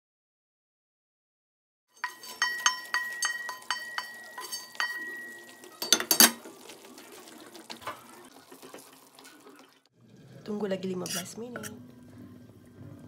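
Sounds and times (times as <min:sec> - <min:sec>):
spatula knocking on metal pan: 0:02.0 - 0:06.4
stirring nuts into stew: 0:02.0 - 0:09.5.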